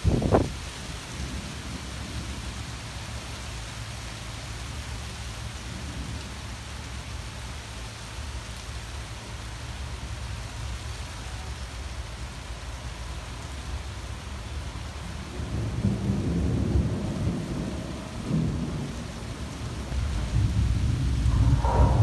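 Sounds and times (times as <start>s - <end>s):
low rumble of thunder: 0.0s - 4.0s, 14.5s - 22.0s
rain on tree leaves: 0.0s - 22.0s
loud low burst: 20.9s - 22.0s.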